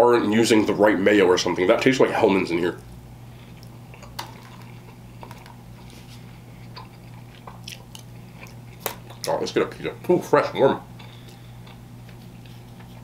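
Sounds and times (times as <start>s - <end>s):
steady low hum: 0.0s - 13.0s
person chewing: 2.8s - 9.4s, 10.9s - 13.0s.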